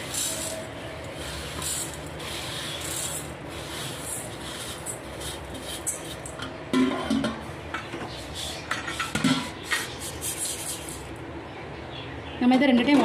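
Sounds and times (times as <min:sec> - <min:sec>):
rice rubbed in steel bowl: 0:00.0 - 0:06.3, 0:09.6 - 0:11.1.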